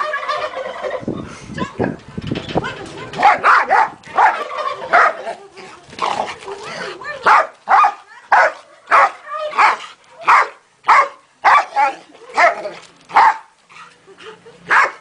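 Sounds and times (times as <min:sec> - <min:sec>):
dog barking: 0:03.2 - 0:05.2, 0:07.2 - 0:13.5, 0:14.7 - 0:15.0.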